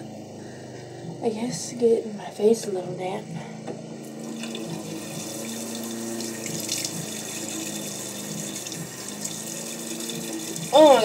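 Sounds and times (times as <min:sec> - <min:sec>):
sink tap running: 0:04.1 - 0:11.0.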